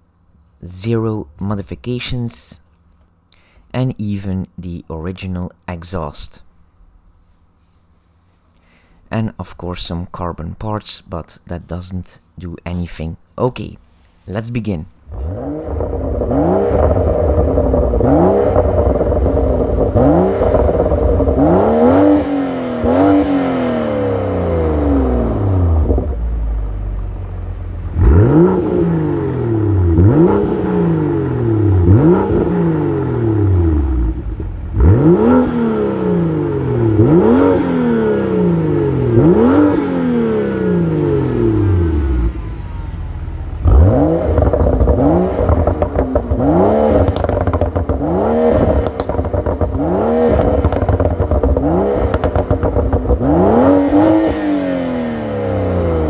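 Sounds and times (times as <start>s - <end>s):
car engine revving: 15.0s - 56.0s.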